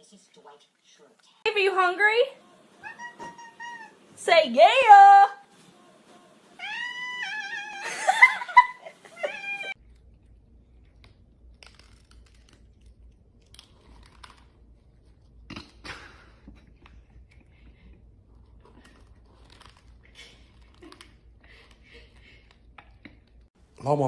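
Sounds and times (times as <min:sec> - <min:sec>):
kitten meowing: 0:02.8 - 0:03.9, 0:06.6 - 0:07.8
dry kibble crunching: 0:09.8 - 0:15.3.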